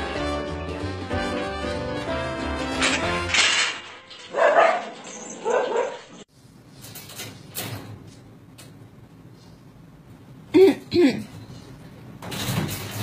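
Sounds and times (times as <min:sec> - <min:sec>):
dog barking: 0:04.3 - 0:06.2.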